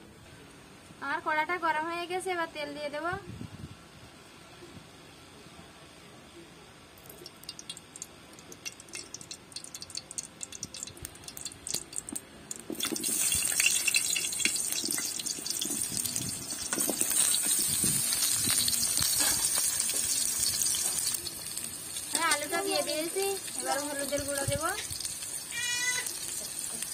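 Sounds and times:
hot oil crackling and spitting: 0:07.0 - 0:26.9
potatoes sizzling in oil: 0:07.2 - 0:26.9.

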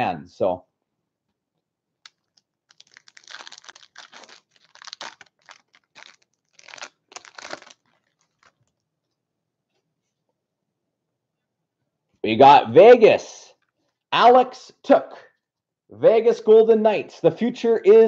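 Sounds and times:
foil wrapper tearing and crinkling: 0:02.1 - 0:08.7.

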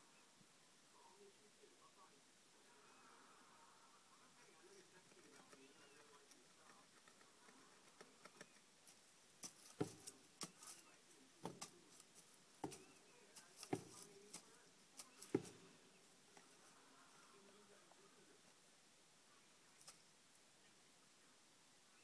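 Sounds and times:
rabbit rustling in bedding: 0:08.8 - 0:16.8.

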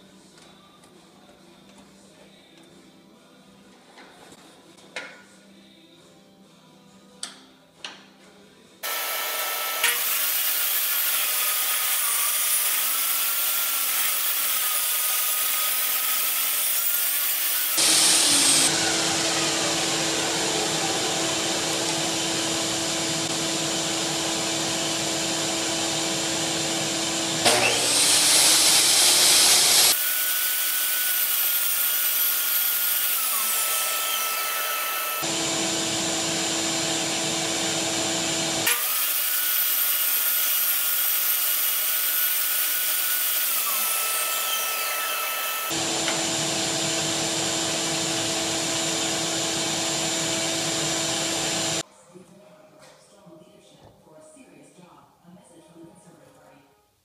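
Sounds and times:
table saw cutting wood: 0:08.8 - 0:51.8.

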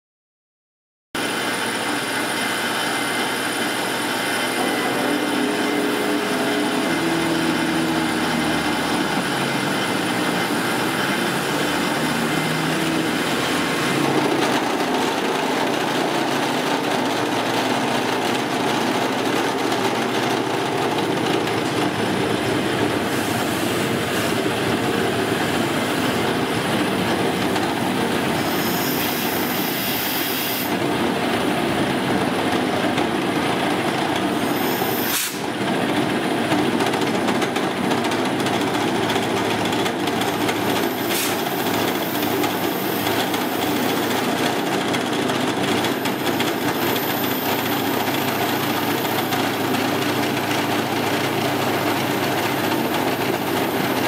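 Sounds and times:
milling machine cutting steel: 0:01.2 - 0:30.8
compressed air hissing: 0:23.1 - 0:24.4, 0:28.4 - 0:30.7, 0:34.4 - 0:35.5, 0:41.1 - 0:41.4.

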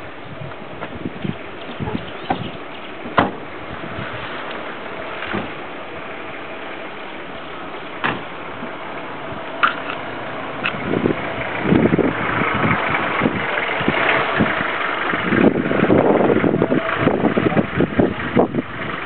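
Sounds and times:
vehicle engine idling: 0:00.0 - 0:19.0
sharp knocks: 0:02.2 - 0:03.5.

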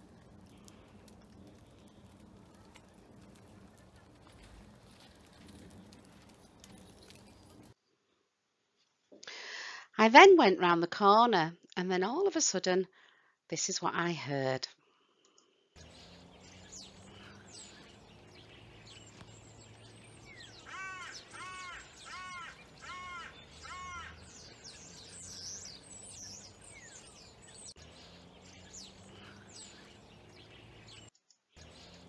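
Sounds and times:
birds chirping and calling: 0:00.0 - 0:07.7, 0:15.8 - 0:32.0
low background rumble: 0:00.0 - 0:07.8
bird harsh caws: 0:20.3 - 0:25.8.

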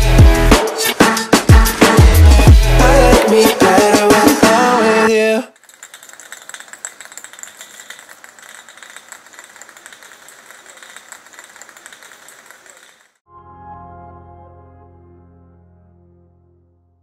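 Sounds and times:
decorations scraping along pavement: 0:05.6 - 0:13.2.

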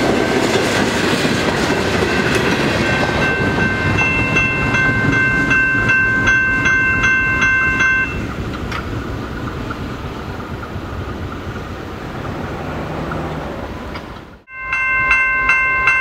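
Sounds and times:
crossing warning bell ringing: 0:00.0 - 0:09.0, 0:14.4 - 0:16.0
passing train rumble: 0:00.0 - 0:16.0.

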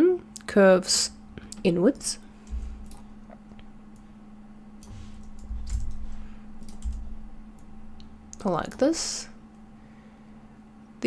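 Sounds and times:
faint steady hum: 0:00.0 - 0:11.0
low rumbling bumps: 0:02.5 - 0:03.4, 0:04.9 - 0:08.3
computer mouse clicks: 0:04.8 - 0:08.5.

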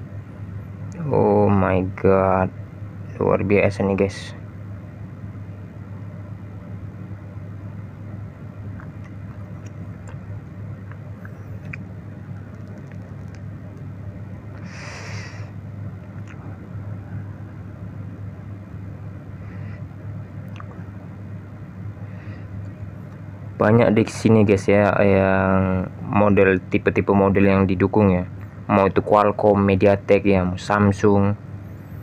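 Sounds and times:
low background hum: 0:00.0 - 0:32.0
faint clicks: 0:12.4 - 0:13.9.

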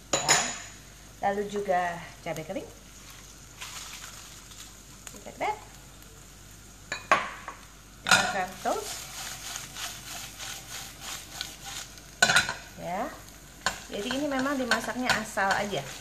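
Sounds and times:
aromatics sizzling in a pan: 0:00.0 - 0:16.0
spatula scraping pan: 0:08.1 - 0:12.6, 0:13.6 - 0:16.0.

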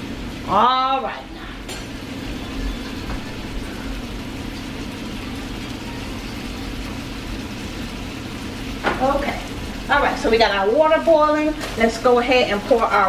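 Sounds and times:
low hum: 0:00.0 - 0:13.0
meat sizzling in a frying pan: 0:00.0 - 0:13.0.

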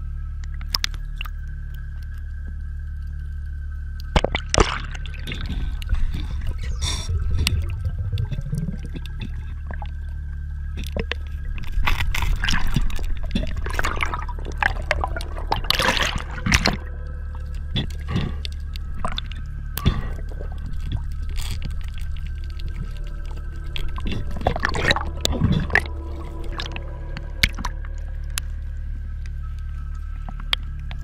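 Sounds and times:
steady low hum: 0:00.0 - 0:31.0
underwater water gurgling: 0:00.3 - 0:31.0
bubbles: 0:04.1 - 0:28.5.

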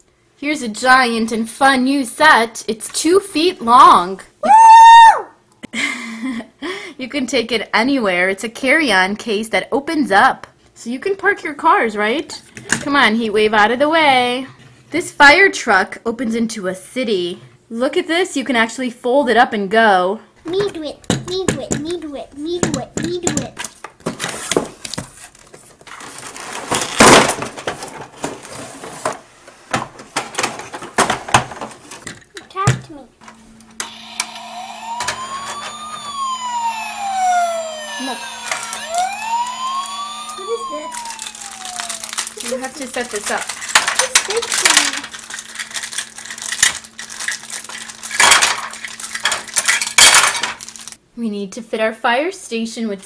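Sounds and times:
plastic wrapper crinkling: 0:25.1 - 0:28.6, 0:39.5 - 0:51.0.

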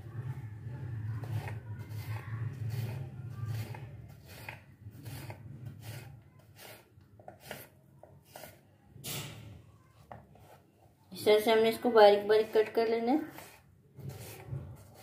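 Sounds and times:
knife cutting on wooden board: 0:01.3 - 0:08.6, 0:13.3 - 0:15.0.

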